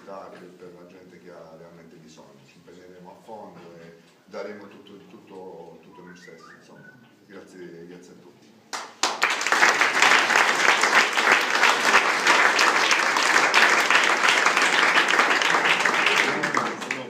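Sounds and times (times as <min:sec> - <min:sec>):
crowd applauding: 0:08.7 - 0:17.0.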